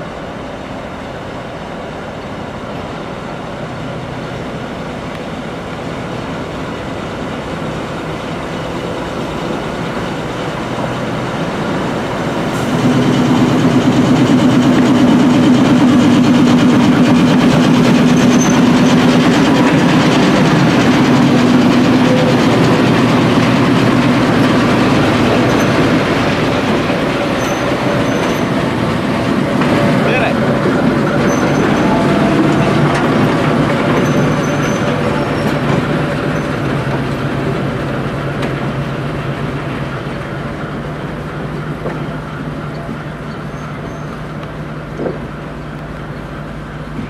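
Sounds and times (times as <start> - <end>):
diesel locomotive engine running: 0.0 - 47.0
wheels rumbling and clicking on rails: 0.0 - 47.0.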